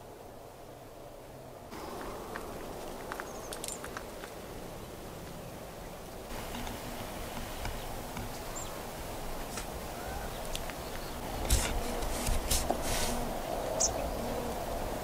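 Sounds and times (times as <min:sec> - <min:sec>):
steady hiss: 0:00.0 - 0:15.0
crunching rustles on dry ground: 0:01.7 - 0:05.5, 0:06.2 - 0:14.7
bird chirp: 0:01.8 - 0:04.0, 0:04.7 - 0:08.8, 0:09.9 - 0:11.5, 0:13.4 - 0:14.4
faint clicks: 0:01.9 - 0:04.4, 0:10.4 - 0:11.1.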